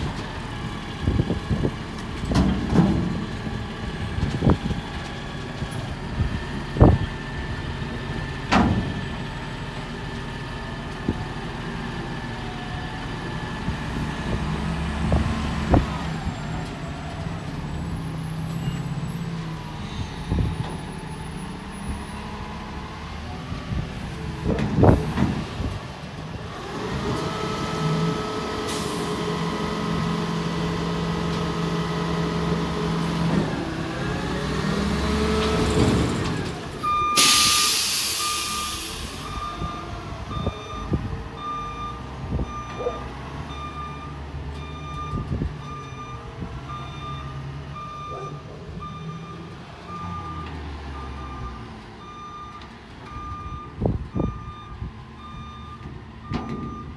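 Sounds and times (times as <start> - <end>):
reversing alarm beeping: 36.8 - 56.9
air brake release hiss: 37.2 - 39.4.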